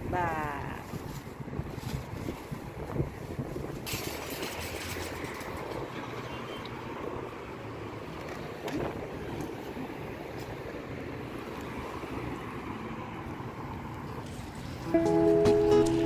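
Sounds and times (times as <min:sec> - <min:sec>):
cart wheels rattling on paving: 0:03.7 - 0:06.6.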